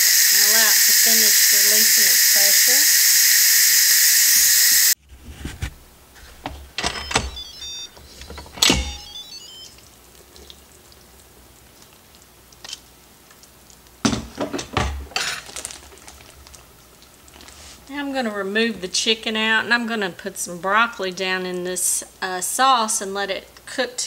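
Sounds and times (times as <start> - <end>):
electronic chime beeps: 7.0 - 8.0, 8.6 - 9.8.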